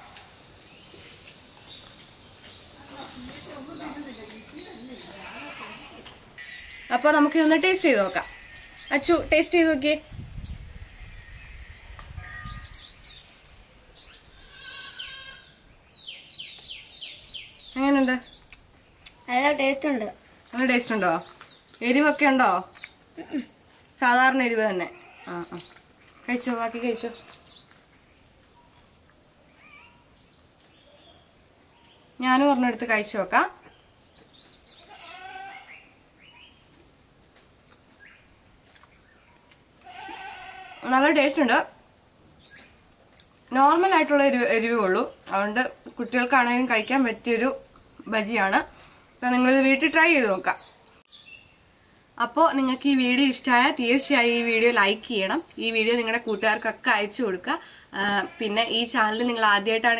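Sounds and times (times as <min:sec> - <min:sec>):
small birds chirping: 0:00.6 - 0:37.0, 0:37.6 - 0:41.6, 0:42.3 - 0:59.9
animal bleat: 0:05.0 - 0:06.1, 0:08.0 - 0:09.1, 0:14.4 - 0:15.6, 0:24.9 - 0:26.3, 0:34.8 - 0:35.8, 0:39.8 - 0:41.0, 0:58.0 - 0:58.8.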